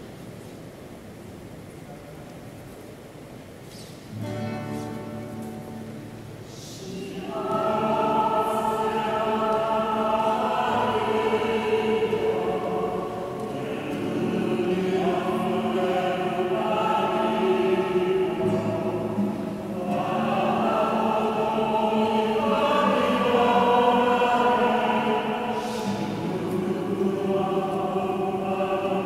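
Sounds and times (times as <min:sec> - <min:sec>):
choir singing sacred song: 0:05.2 - 0:29.0.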